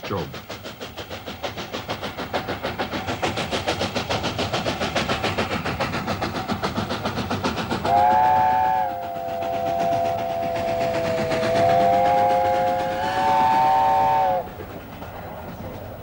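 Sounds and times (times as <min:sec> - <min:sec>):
train running: 0:00.0 - 0:16.0
steam locomotive chime whistle: 0:07.9 - 0:14.5.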